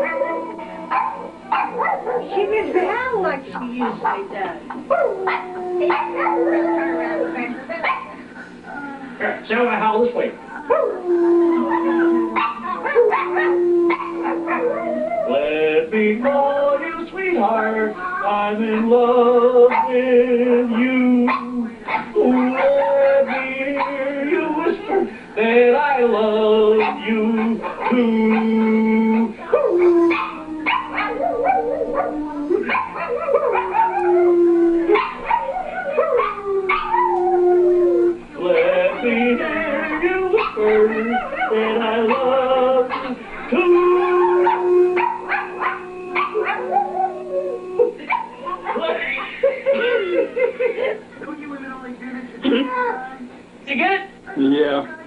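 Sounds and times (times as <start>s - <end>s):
small dog howling: 0.0s - 2.3s, 4.9s - 8.0s, 10.6s - 15.4s, 26.7s - 49.0s
man howling: 10.9s - 16.9s, 20.3s - 49.1s.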